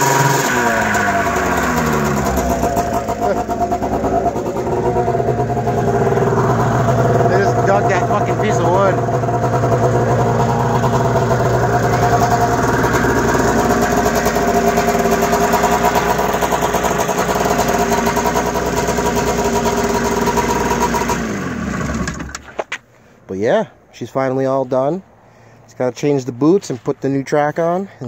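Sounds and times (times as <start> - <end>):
snowmobile engine running: 0.0 - 22.4.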